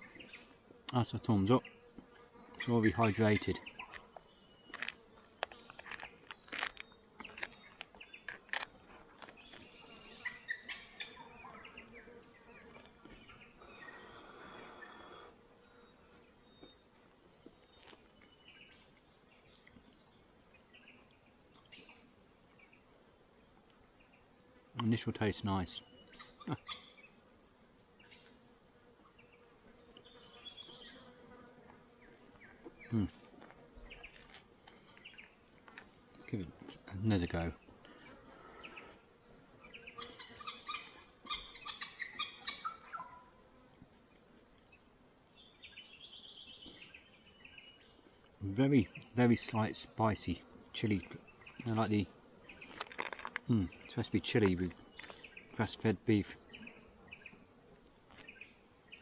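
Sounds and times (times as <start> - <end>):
fly buzzing: 0.0 - 19.6, 20.2 - 55.6
bird chirps: 9.4 - 22.0, 37.9 - 43.4, 53.5 - 55.6.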